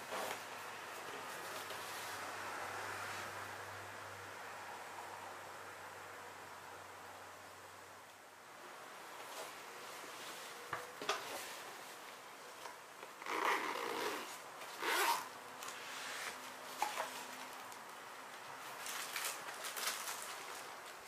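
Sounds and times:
zipper being pulled open: 0:13.2 - 0:16.4.

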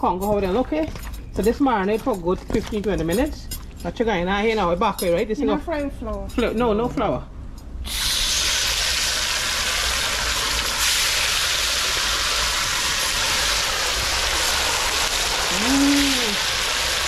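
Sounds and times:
fish sizzling in hot oil: 0:07.9 - 0:17.0.

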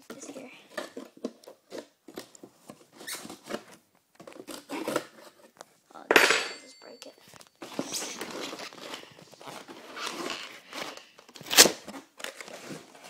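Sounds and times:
cardboard packaging rustling: 0:00.2 - 0:05.9, 0:07.0 - 0:13.0
cardboard tearing: 0:00.9 - 0:05.5, 0:08.0 - 0:13.0.

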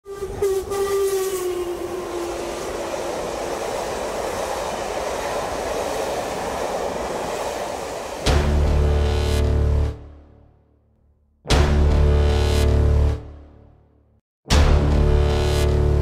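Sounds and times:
train horn long note: 0:00.0 - 0:03.0, 0:08.3 - 0:10.4, 0:14.6 - 0:16.0
train running by: 0:00.1 - 0:10.2.

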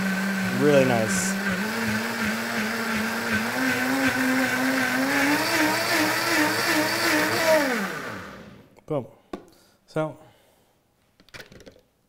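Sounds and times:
blender running: 0:00.0 - 0:08.7.

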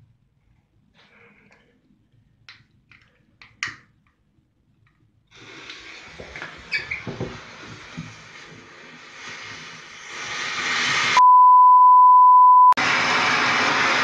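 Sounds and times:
fountain firework hissing: 0:05.3 - 0:11.2
steady beep tone: 0:11.2 - 0:12.8.

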